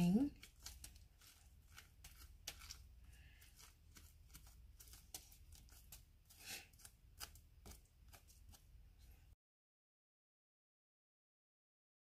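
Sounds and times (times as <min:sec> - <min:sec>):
metal spoon scraping squash: 0:00.0 - 0:08.7.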